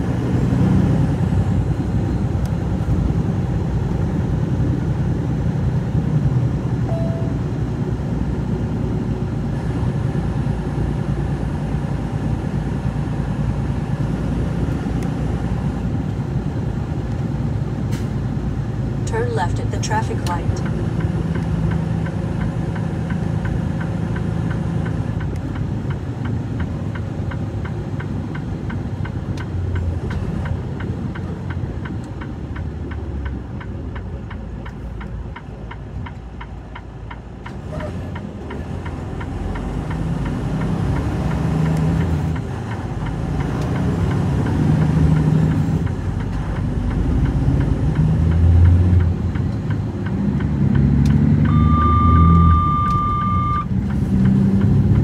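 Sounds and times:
truck engine idling and revving: 0.0 - 55.0.

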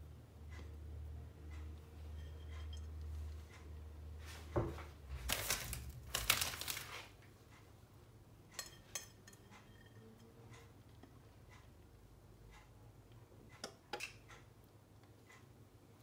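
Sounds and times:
crinkly rustling: 5.1 - 7.2.

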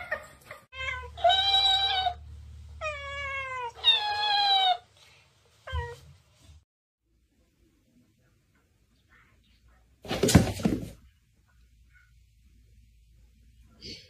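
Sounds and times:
cat meowing: 2.8 - 4.8.

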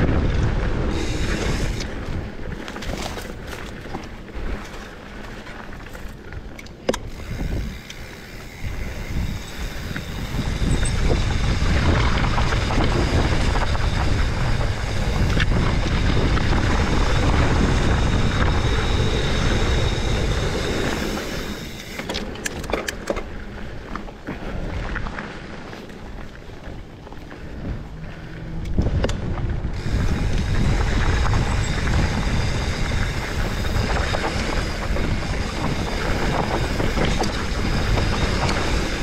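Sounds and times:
wind rushing over microphone: 0.0 - 5.2, 6.4 - 39.0
tyres crunching on dirt and stones: 0.0 - 19.2
bike clicks and knocks: 0.0 - 39.0.

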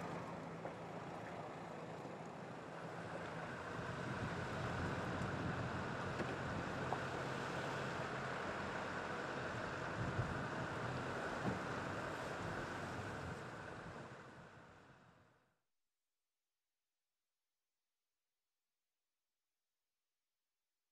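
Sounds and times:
idling vehicle engines hum: 0.0 - 15.5.

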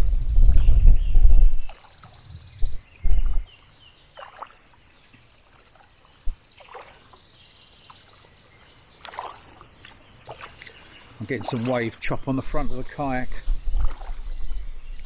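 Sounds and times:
wind buffeting microphone: 0.0 - 3.6, 11.2 - 15.0
bird singing rapid trills: 0.1 - 15.0
paddle strokes splashing water: 1.6 - 14.6.

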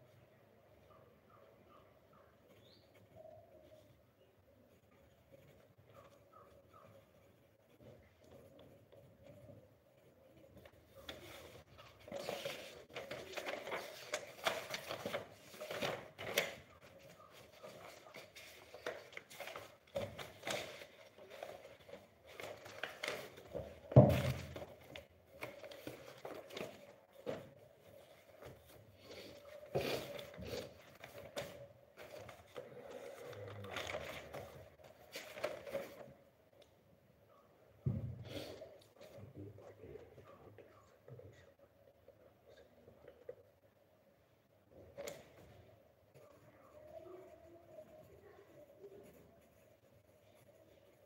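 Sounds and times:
paper rustling: 2.4 - 36.6
thump: 37.8 - 38.3.

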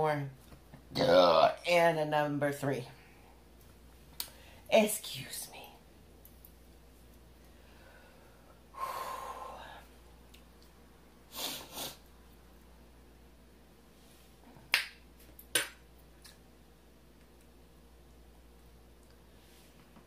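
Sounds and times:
breathy exhale: 7.5 - 9.9
quick sniffs: 11.3 - 12.0.

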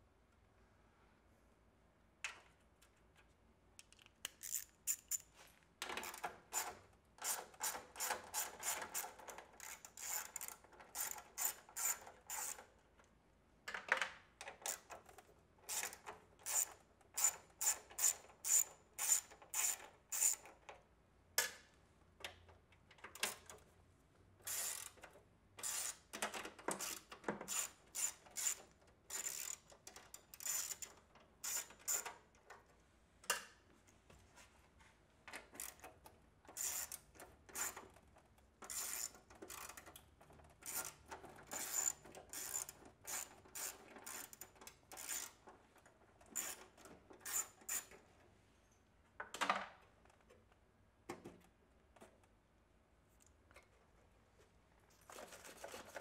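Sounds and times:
hand ratchet clicking: 3.8 - 5.3, 6.0 - 12.6, 15.7 - 20.5, 26.8 - 32.1, 36.6 - 37.8, 41.6 - 45.4.

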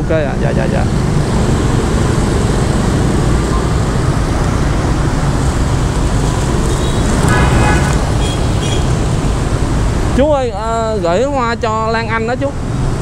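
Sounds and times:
busy street traffic: 0.0 - 13.0.

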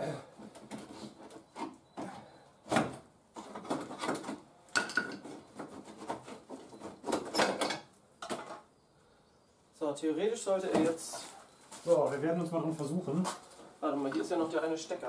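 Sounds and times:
scraping and rubbing on plastic: 5.2 - 7.4.

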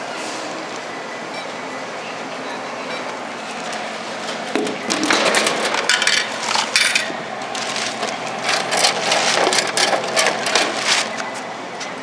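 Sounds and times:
bottle clattering in vending machine: 4.6 - 11.1.

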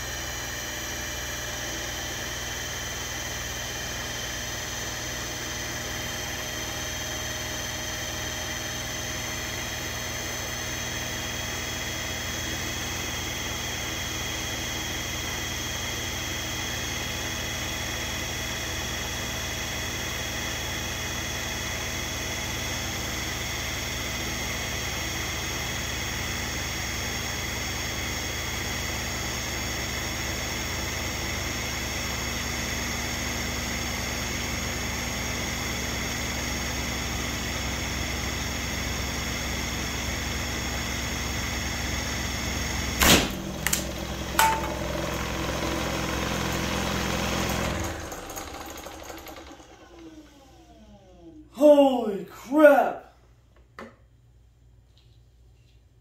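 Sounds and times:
motor whining with low hum: 0.0 - 51.5
plastic propeller bursting: 43.0 - 44.6.

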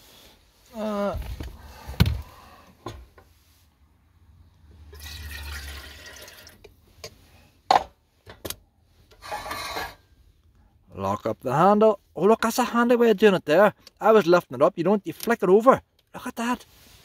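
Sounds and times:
water pouring into kettle: 4.9 - 6.6.

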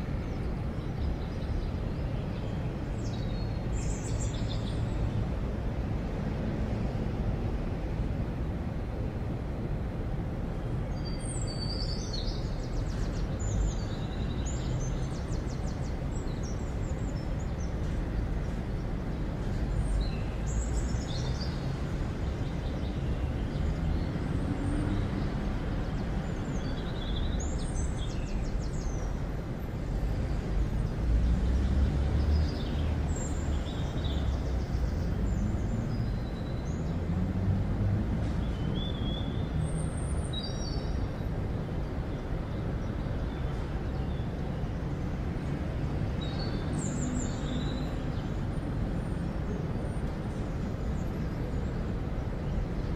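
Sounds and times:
small birds chirping: 10.9 - 29.6.

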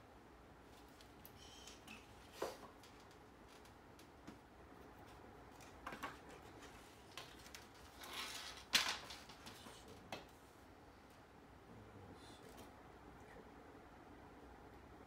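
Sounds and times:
bamboo scrape: 6.4 - 8.7.

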